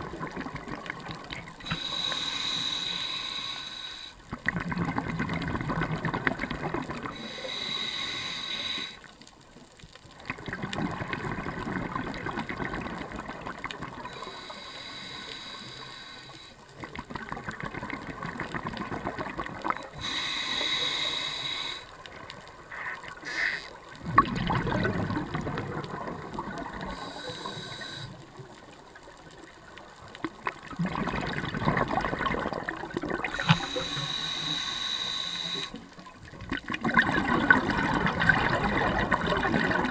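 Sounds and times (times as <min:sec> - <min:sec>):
exhaled bubbles: 0:00.0 - 0:09.0, 0:10.2 - 0:16.1, 0:16.8 - 0:39.9
regulator hissing inhale: 0:01.6 - 0:04.3, 0:07.1 - 0:09.1, 0:14.1 - 0:16.6, 0:19.8 - 0:22.0, 0:22.7 - 0:23.8, 0:26.8 - 0:28.4, 0:33.4 - 0:36.0.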